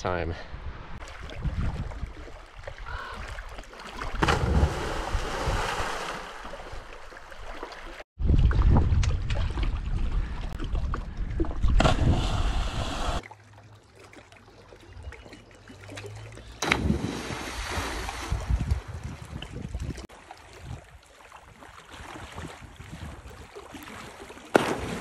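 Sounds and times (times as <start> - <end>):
wind rumbling on microphone: 0.5 - 3.1, 8.2 - 13.2, 16.8 - 21.0, 22.2 - 23.5
body splashing into water: 1.0 - 8.0, 16.6 - 19.2, 20.6 - 25.0.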